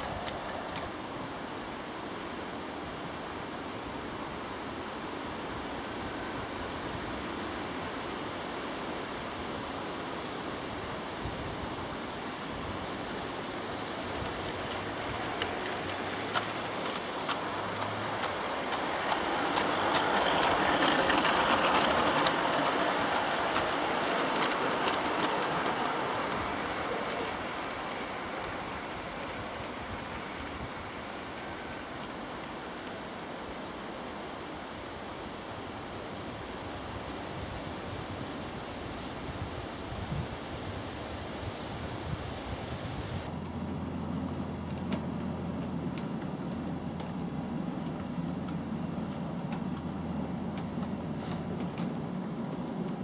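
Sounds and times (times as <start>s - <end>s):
clicks at rail joints: 0.0s - 0.9s, 13.6s - 33.0s, 44.6s - 53.0s
steady background hiss: 0.0s - 53.0s
model train wheels rumbling on rail: 9.9s - 40.4s, 43.2s - 53.0s.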